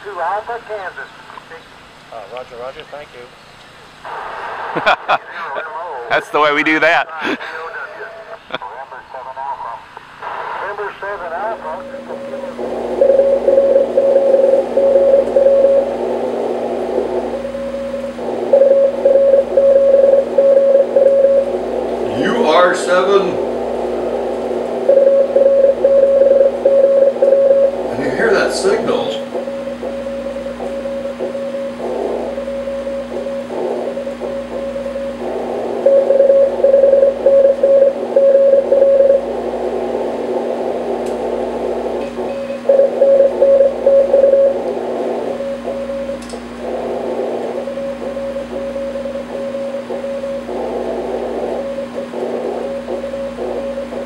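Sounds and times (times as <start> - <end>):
radio band hiss: 0.0 - 54.0
low steady hum: 10.7 - 54.0
steady low tone: 11.5 - 54.0
morse code tone: 11.6 - 54.0.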